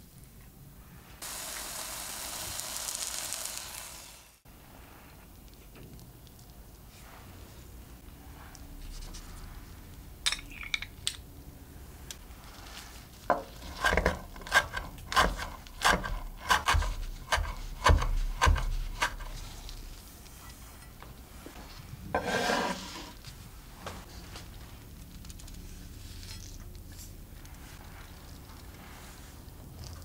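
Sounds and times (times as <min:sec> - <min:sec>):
knife chopping on wooden board: 0:13.8 - 0:19.4.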